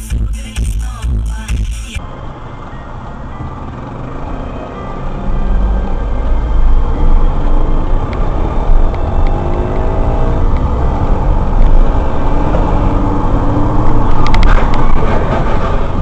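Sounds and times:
vehicle engine and road rumble: 0.0s - 16.0s.

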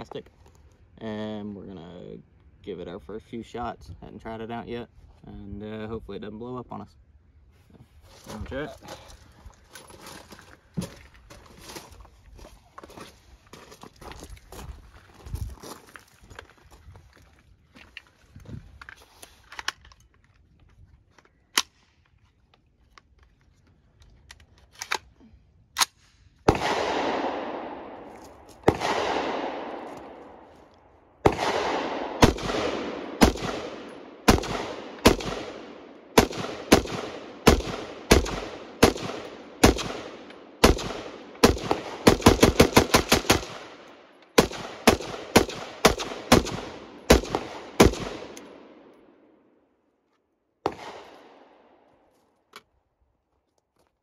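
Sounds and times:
rifle shots echoing: 26.4s - 30.5s, 31.2s - 49.4s, 50.6s - 51.8s.

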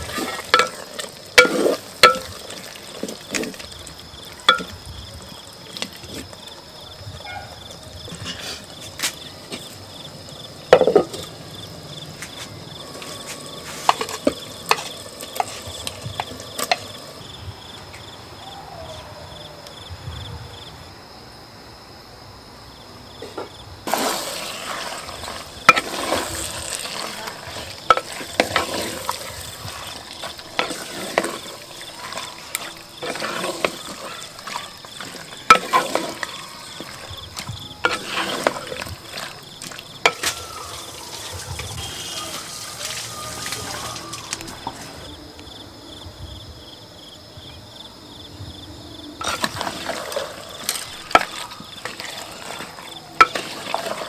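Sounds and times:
utensil stirring and scraping: 0.0s - 4.7s, 12.4s - 17.0s, 23.9s - 43.0s, 49.2s - 54.0s
food sizzling in a pot: 0.0s - 6.2s, 8.4s - 17.2s, 23.8s - 45.0s, 49.2s - 54.0s
high insect chirp: 0.0s - 54.0s.

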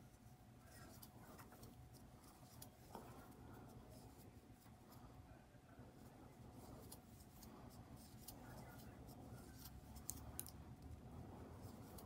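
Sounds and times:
crochet hook clicking and rustling yarn: 9.4s - 11.0s.

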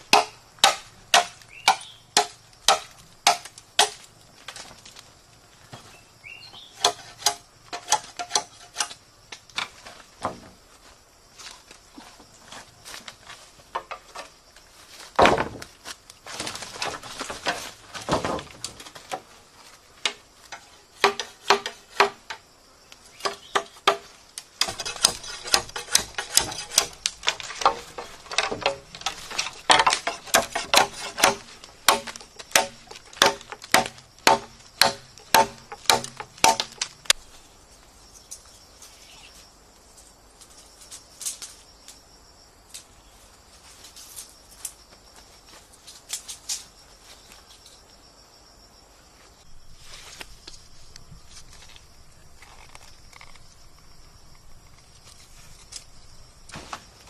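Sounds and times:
insects buzzing: 0.0s - 57.0s
machete chopping bamboo: 0.1s - 4.0s, 6.8s - 8.9s, 21.0s - 22.4s, 23.2s - 36.9s.

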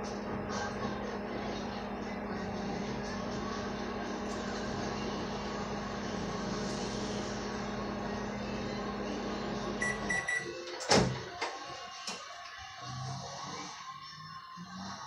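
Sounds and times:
microwave oven humming: 0.0s - 15.0s
microwave beeps: 9.8s - 10.7s.

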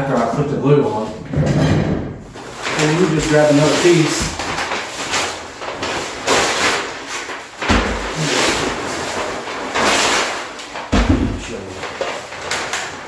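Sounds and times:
paper tearing: 2.4s - 10.9s.

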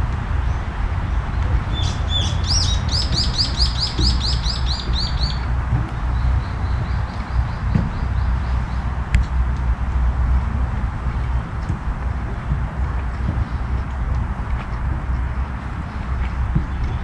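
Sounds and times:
songbird singing: 0.4s - 9.0s.

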